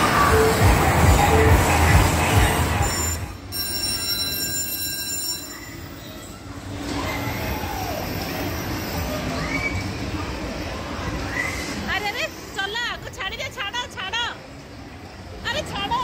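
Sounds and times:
heavy low pulsing: 0.0 - 2.9
hubbub around bumper cars: 0.0 - 16.0
kiddie ride running: 0.0 - 16.0.

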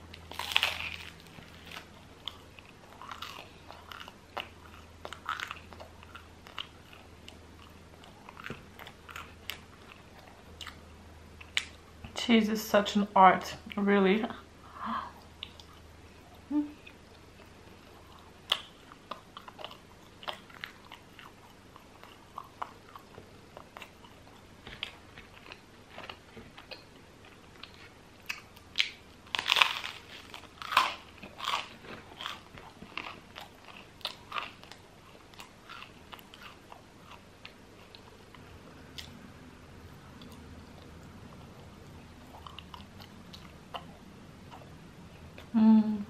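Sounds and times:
crunching bread: 0.2 - 10.8, 27.7 - 37.2.

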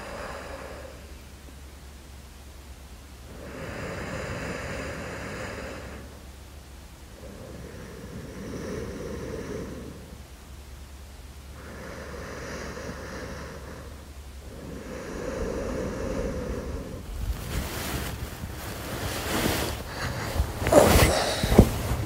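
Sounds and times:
person breathing asleep: 0.0 - 1.3, 3.2 - 6.4, 7.1 - 10.4, 11.5 - 22.0.

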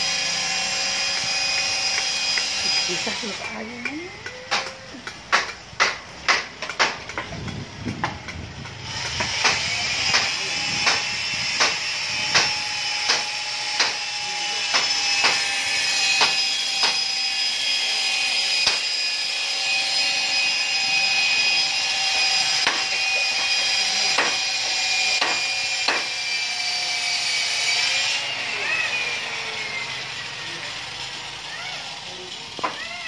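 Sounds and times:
electric drill boring into wood: 0.0 - 5.2, 7.1 - 33.0
sharp knocks: 5.3 - 7.3, 9.0 - 14.0, 14.7 - 15.5, 22.6 - 24.4, 25.1 - 26.1.

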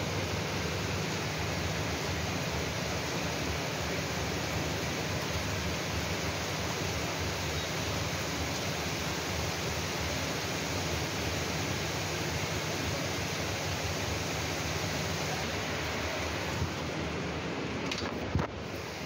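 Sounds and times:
heavy rain hissing: 0.0 - 19.0.

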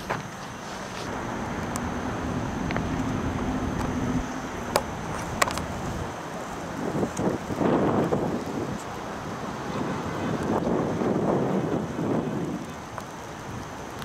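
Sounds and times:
vehicle engine rumble: 0.0 - 14.0
faint hum: 0.1 - 8.3.

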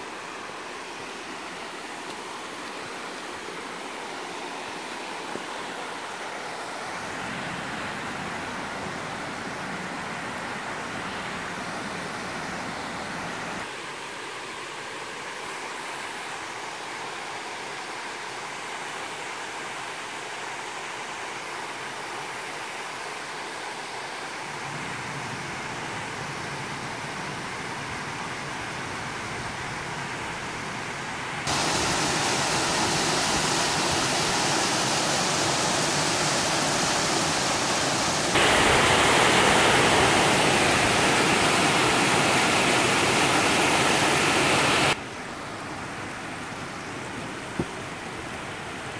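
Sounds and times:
water rushing over rock ledges: 31.4 - 48.9.

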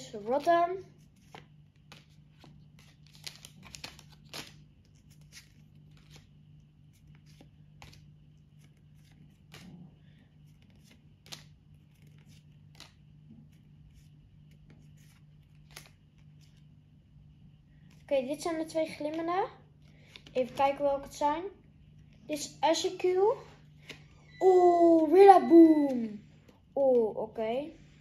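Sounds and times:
steady low hum: 0.0 - 28.0
cards clicking and rustling: 0.1 - 9.8, 10.4 - 16.7, 18.9 - 20.8.

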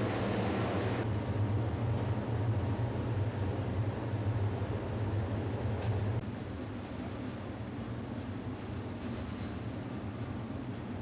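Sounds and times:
machinery hum: 0.0 - 11.0.

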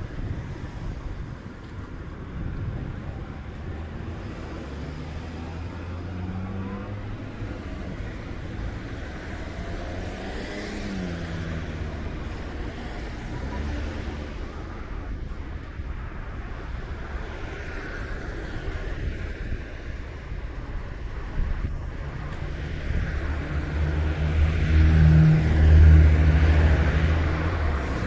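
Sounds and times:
car passing by: 3.6 - 15.7, 21.6 - 28.0.

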